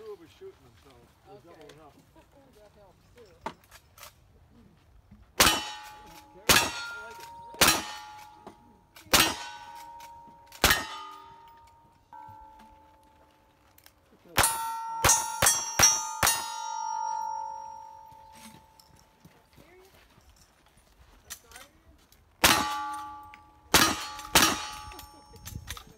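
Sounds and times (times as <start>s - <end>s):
pistol shots: 5.4s - 8.4s, 9.1s - 11.5s, 14.4s - 18.2s, 22.4s - 25.2s
steel targets ringing: 5.4s - 13.4s, 14.3s - 19.2s, 22.4s - 25.6s.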